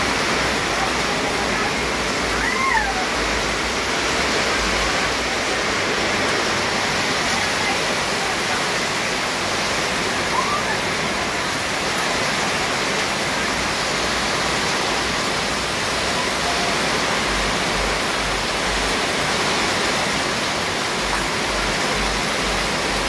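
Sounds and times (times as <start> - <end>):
low rumbles: 0.0 - 7.2, 13.6 - 23.0.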